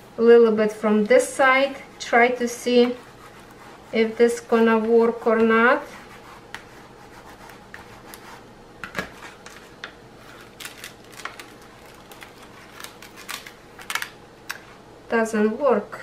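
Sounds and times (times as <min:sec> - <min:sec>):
paper sheet rustling and crinkling: 0:09.1 - 0:14.1
sharp paper crackles: 0:10.2 - 0:14.2.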